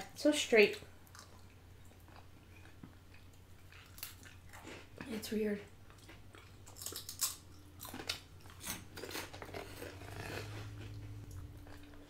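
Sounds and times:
crisp snacks being chewed: 0:01.1 - 0:05.1, 0:05.9 - 0:12.0.

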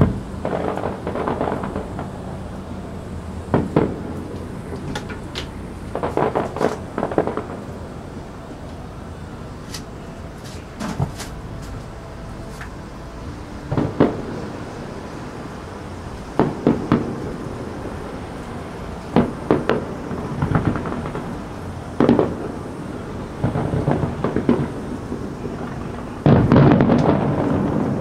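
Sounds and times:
firework shells bursting: 0:00.0 - 0:02.6, 0:03.2 - 0:08.0, 0:16.3 - 0:28.0
firework crackling: 0:00.0 - 0:28.0.

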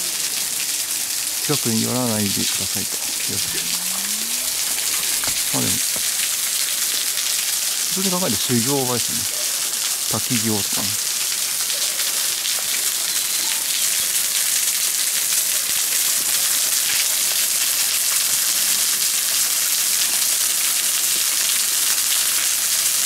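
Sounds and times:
waterfall splashing: 0:00.0 - 0:13.2.

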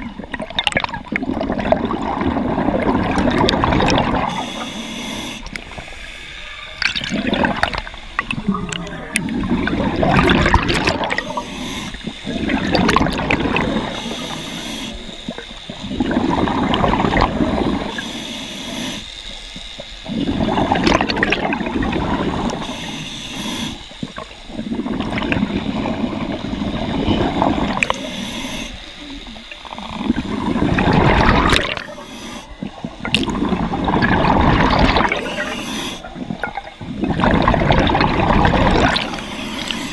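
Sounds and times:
exhaust bubbles: 0:00.0 - 0:04.6, 0:06.8 - 0:18.0, 0:20.0 - 0:22.7, 0:23.7 - 0:32.0, 0:32.6 - 0:39.9
regulator hiss on inhale: 0:04.1 - 0:06.8, 0:11.0 - 0:12.8, 0:13.5 - 0:20.3, 0:22.2 - 0:33.0, 0:35.0 - 0:36.4, 0:38.8 - 0:39.9.

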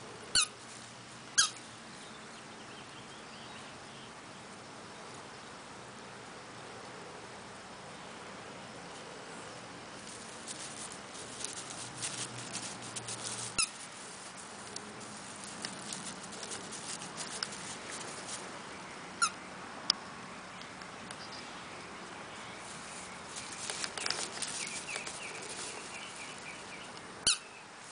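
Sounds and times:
crackling and rustling in grass: 0:00.0 - 0:05.4, 0:08.9 - 0:27.9
squeaky rubber ball squeaking: 0:00.3 - 0:00.5, 0:01.4 - 0:01.6, 0:27.2 - 0:27.4.

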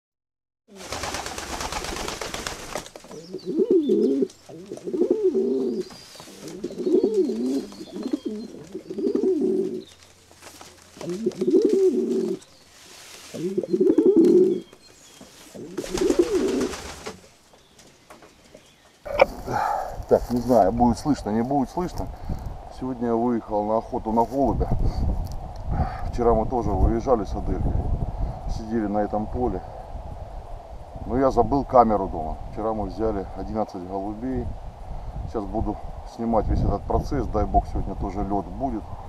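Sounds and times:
pigeons cooing: 0:00.7 - 0:17.3, 0:19.1 - 0:22.5.

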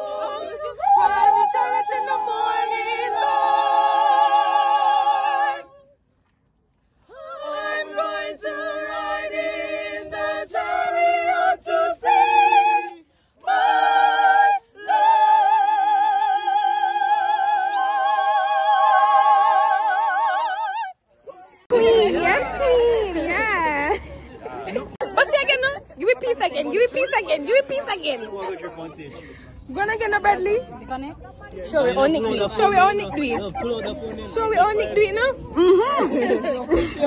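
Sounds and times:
choir singing a cappella: 0:00.0 - 0:05.9, 0:07.1 - 0:20.9.

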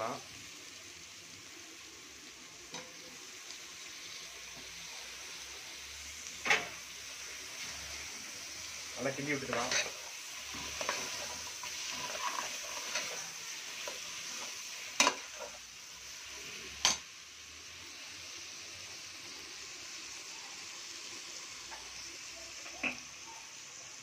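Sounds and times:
meat sizzling in oil: 0:00.0 - 0:24.0
spatula stirring and scraping: 0:09.0 - 0:15.7.

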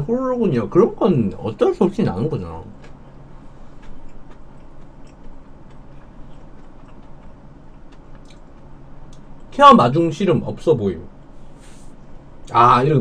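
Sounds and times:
low steady hum: 0:00.0 - 0:13.0
chewing clicks: 0:03.8 - 0:09.5.

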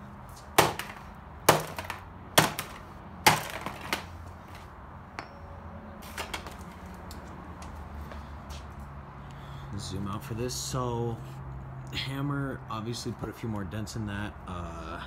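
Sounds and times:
hammer smashing phone: 0:00.6 - 0:04.2.

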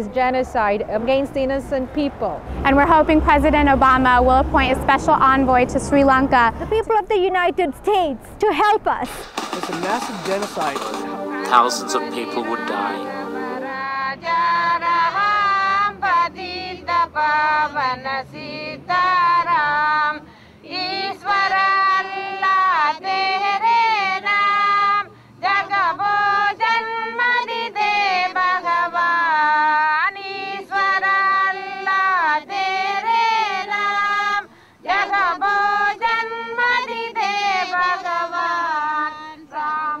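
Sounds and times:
high voice singing slow song: 0:11.0 - 0:15.6.

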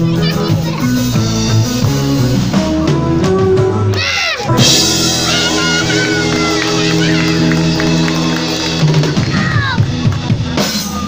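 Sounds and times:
rock band playing live: 0:00.0 - 0:11.0
ringing guitar chord: 0:04.5 - 0:09.2
falling guitar swoop: 0:04.5 - 0:09.8.

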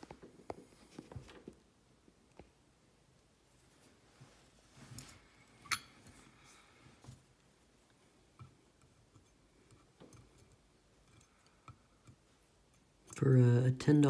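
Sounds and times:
metallic clink with ring: 0:05.0 - 0:06.0.

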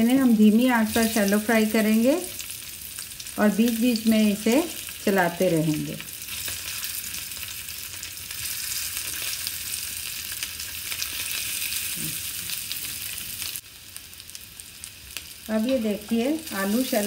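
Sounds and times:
potatoes sizzling in oil: 0:00.0 - 0:17.0.

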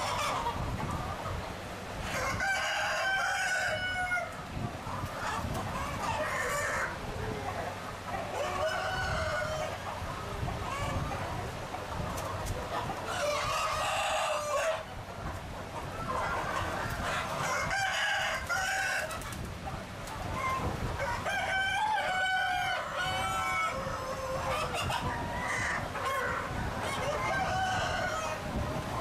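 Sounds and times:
chickens clucking: 0:00.0 - 0:29.0
roosters crowing: 0:02.0 - 0:04.5, 0:05.1 - 0:07.5, 0:08.2 - 0:11.2, 0:12.8 - 0:15.0, 0:15.9 - 0:19.3, 0:20.4 - 0:29.0.

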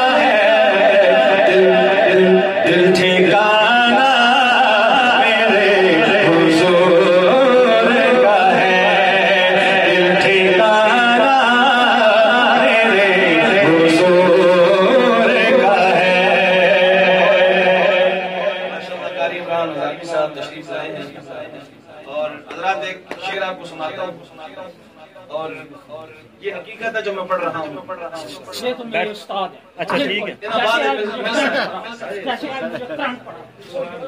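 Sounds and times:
man singing into a microphone: 0:00.0 - 0:21.4.

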